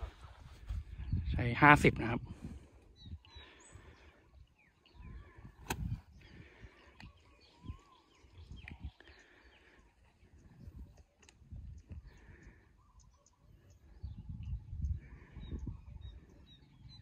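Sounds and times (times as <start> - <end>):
faint birds chirping: 0.0 - 17.0
golf club striking ball: 5.6 - 5.9.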